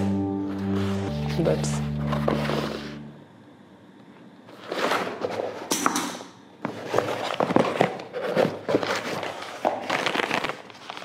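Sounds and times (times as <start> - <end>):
paper wrapping crinkling: 6.8 - 11.0.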